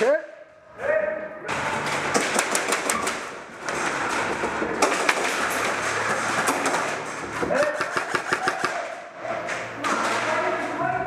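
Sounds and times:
airsoft guns firing: 2.1 - 3.3, 4.8 - 7.0, 7.6 - 9.0.

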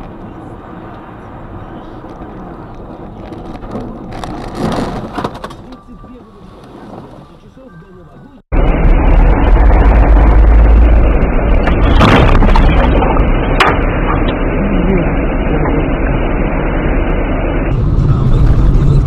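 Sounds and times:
rumbling car cabin noise: 0.0 - 19.0
car crash bang: 11.6 - 14.1.

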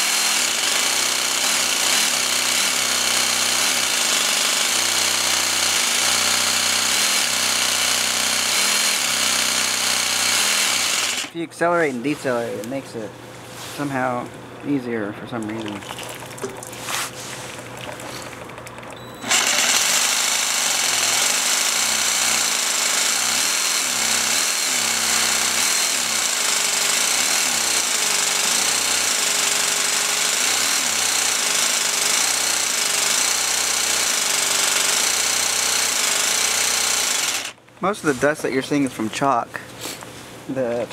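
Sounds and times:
jigsaw cutting ceramic tile: 0.0 - 11.3, 18.0 - 37.6.

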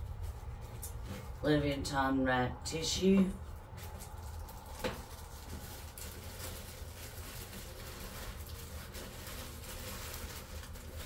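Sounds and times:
low background hum: 0.0 - 11.0
tissue paper rustling: 3.4 - 11.0.

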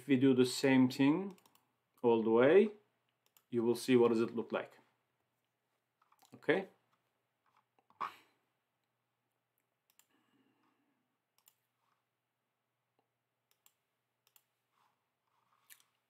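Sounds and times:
computer mouse clicks: 1.3 - 1.7, 3.2 - 3.5, 9.8 - 10.1, 11.4 - 11.6, 13.5 - 14.5.

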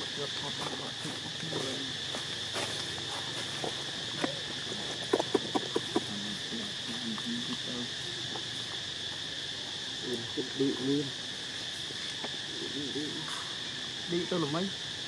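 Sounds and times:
insect chorus buzzing: 0.0 - 15.0.

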